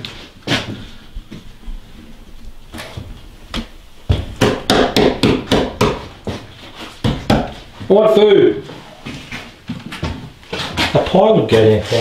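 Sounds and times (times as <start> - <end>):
knocks and thumps on timber: 4.1 - 7.6.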